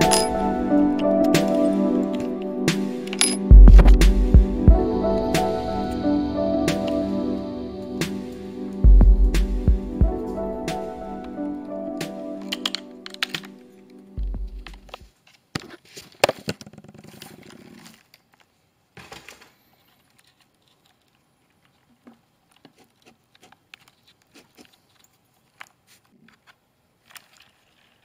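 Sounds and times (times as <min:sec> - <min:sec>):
handling clicks and knocks: 0:12.4 - 0:13.6.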